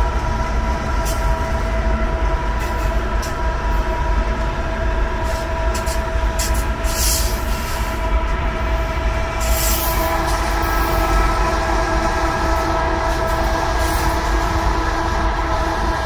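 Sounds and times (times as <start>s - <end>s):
locomotive air horn chord: 5.2s - 16.0s.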